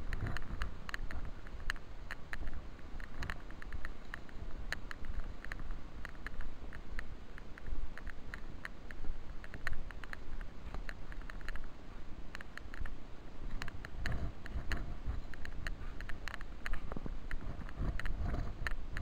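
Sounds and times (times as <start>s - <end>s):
light clicks and taps: 0.0s - 19.0s
wind buffeting microphone: 13.4s - 19.0s.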